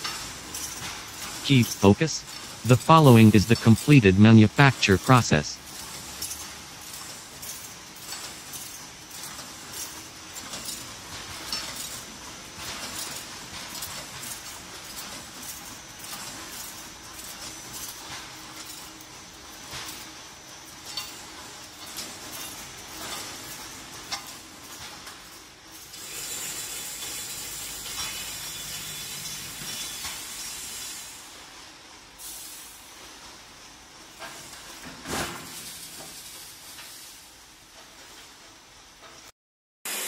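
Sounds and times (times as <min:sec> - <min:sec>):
metallic clicks and clinks: 0:00.0 - 0:28.4
machine hissing: 0:25.8 - 0:31.6.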